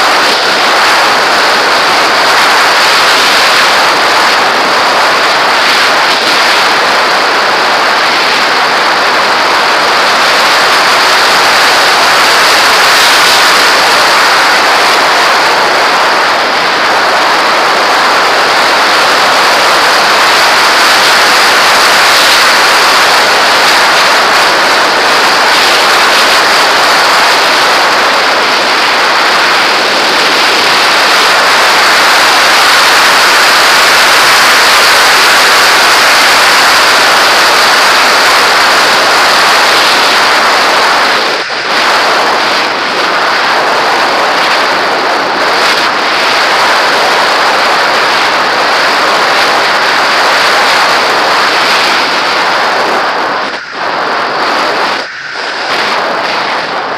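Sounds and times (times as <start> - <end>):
airflow rushing past camera: 0.0 - 56.9.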